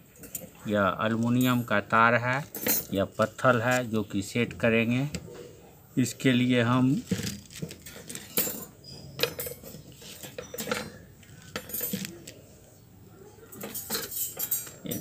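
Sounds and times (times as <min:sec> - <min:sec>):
wire fan guard clinking: 0:01.1 - 0:03.0, 0:07.0 - 0:12.4, 0:13.5 - 0:15.0.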